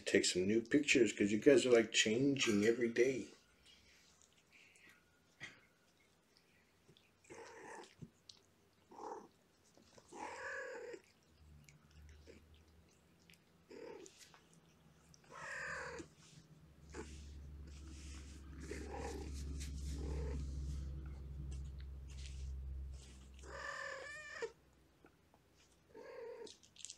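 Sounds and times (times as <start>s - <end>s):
cat purring: 2.4s - 26.9s
cats meowing: 7.2s - 8.0s, 8.8s - 11.2s, 13.4s - 16.3s, 16.9s - 21.9s, 23.0s - 24.6s.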